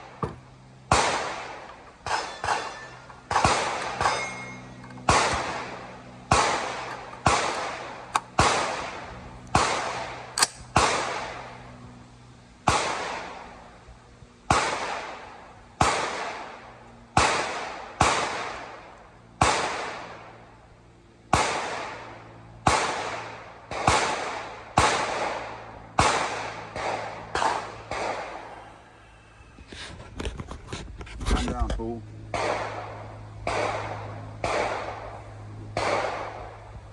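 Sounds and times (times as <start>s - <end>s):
suppressed rifle shots echoing: 0.9s - 11.6s, 12.6s - 13.6s, 14.5s - 20.4s, 21.3s - 28.7s, 32.3s - 36.6s.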